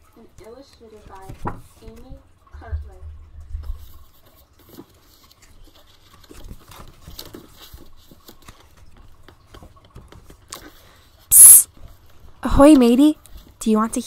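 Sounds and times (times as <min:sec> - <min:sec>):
book pages turning: 0:03.7 - 0:11.2
person hissing psst: 0:11.3 - 0:11.7.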